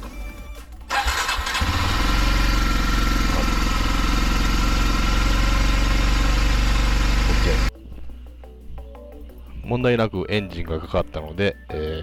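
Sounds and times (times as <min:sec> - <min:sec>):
motorcycle engine idling: 0:00.9 - 0:07.7.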